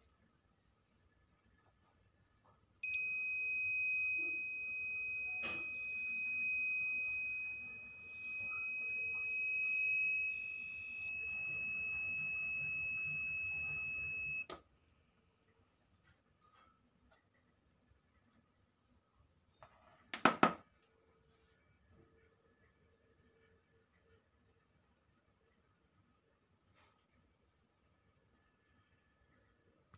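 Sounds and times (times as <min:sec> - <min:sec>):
high-pitched buzzer tone: 0:02.8 - 0:14.5
click: 0:08.4 - 0:09.3, 0:14.4 - 0:14.6.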